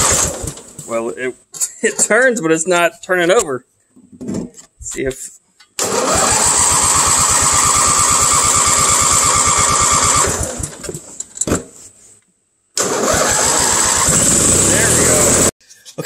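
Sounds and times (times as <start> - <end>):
starter cranking engine: 0.0 - 0.7, 5.8 - 11.0, 12.8 - 15.5.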